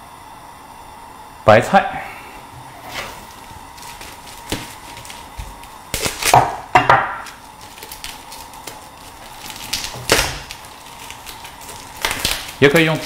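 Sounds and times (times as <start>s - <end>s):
wrapping rustling and scraping: 2.8s - 6.4s, 7.2s - 13.0s.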